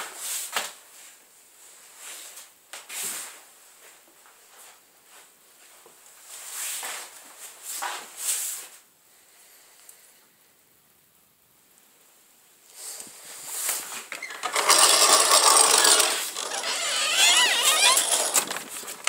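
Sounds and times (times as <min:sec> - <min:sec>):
rustling and shuffling: 0:00.0 - 0:08.9, 0:12.6 - 0:19.0.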